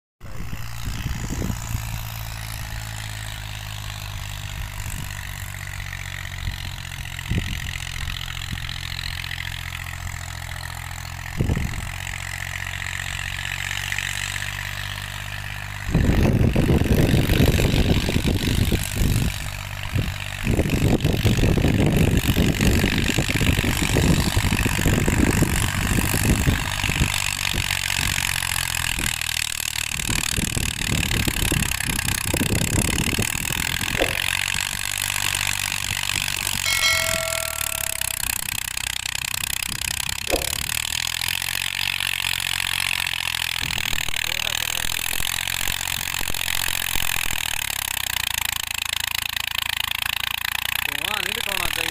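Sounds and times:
loud rough rumble: 0:00.2 - 0:51.9
tractor diesel engine humming: 0:00.2 - 0:51.9
engine knocks: 0:00.5 - 0:51.9.

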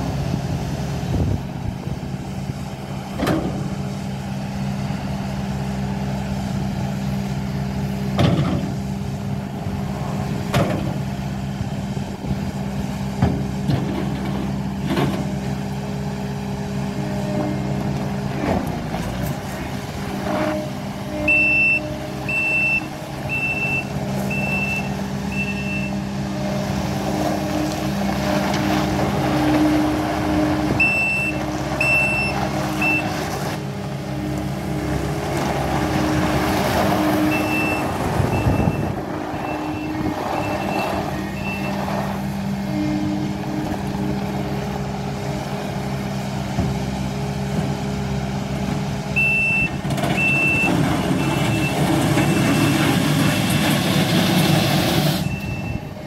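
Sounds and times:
diesel engine running: 0:00.0 - 0:56.0
backup alarm beeping: 0:21.2 - 0:26.0, 0:30.8 - 0:33.1, 0:37.3 - 0:41.8, 0:49.2 - 0:52.9, 0:55.2 - 0:56.0.

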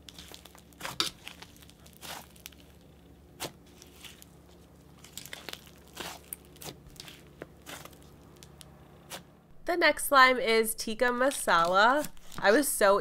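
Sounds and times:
slime squeezed and kneaded: 0:00.0 - 0:08.4.

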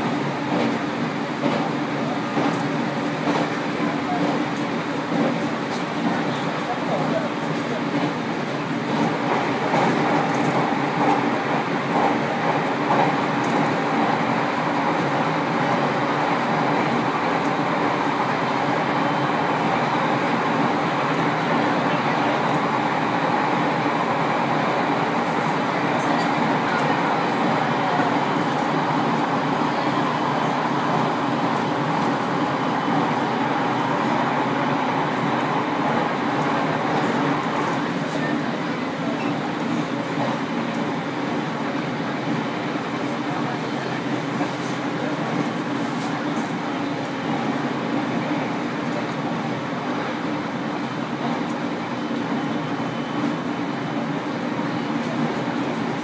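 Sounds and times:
train wheels on rail: 0:00.0 - 0:56.0.

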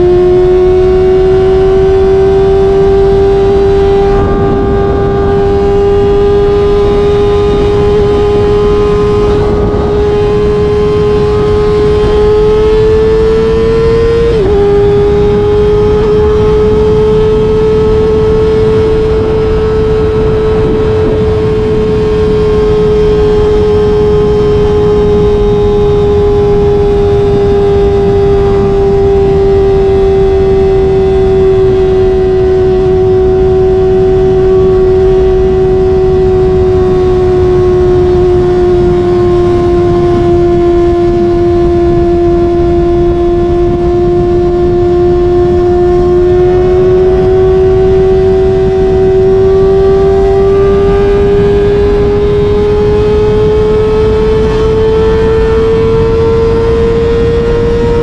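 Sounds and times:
wind rush: 0:00.0 - 0:58.0.

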